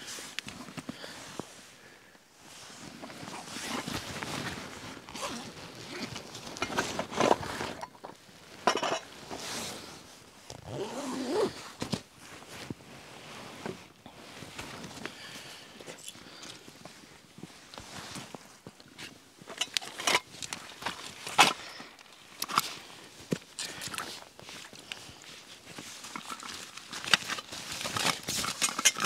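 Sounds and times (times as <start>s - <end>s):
fabric rustling: 2.4s - 19.4s
zipper pulls: 3.1s - 7.8s, 10.5s - 11.9s.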